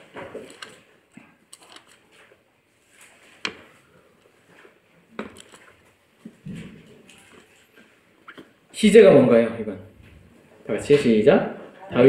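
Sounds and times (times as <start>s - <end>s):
pages being turned: 0.0s - 0.9s, 1.5s - 8.5s.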